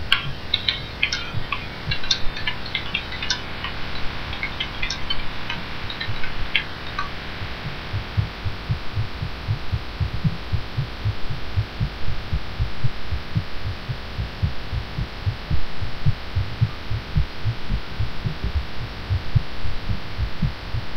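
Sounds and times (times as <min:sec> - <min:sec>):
constant background hiss: 0:00.0 - 0:20.9
fast heartbeat: 0:00.0 - 0:20.9.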